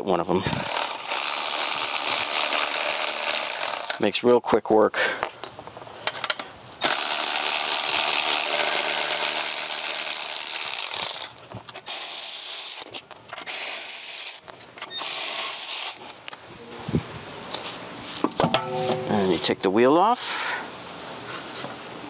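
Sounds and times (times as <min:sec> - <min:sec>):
electric ratchet spinning: 0:00.4 - 0:04.0, 0:06.8 - 0:16.0.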